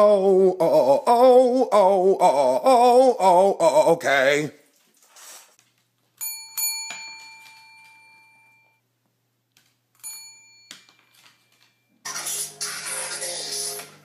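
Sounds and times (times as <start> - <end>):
service bell dings: 6.2 - 8.8, 10.0 - 10.7.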